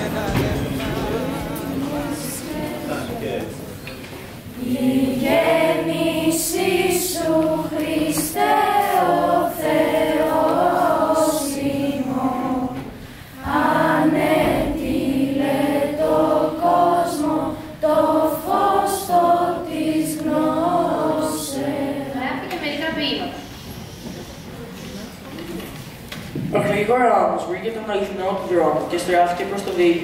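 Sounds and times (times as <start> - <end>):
girls choir singing: 0.0 - 23.2.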